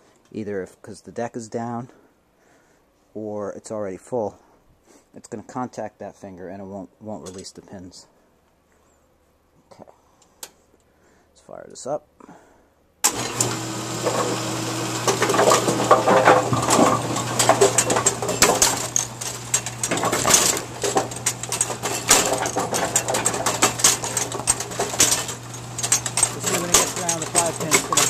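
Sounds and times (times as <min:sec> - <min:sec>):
motor hum: 0:13.0 - 0:28.0
metallic clatter and clicking: 0:15.0 - 0:28.0.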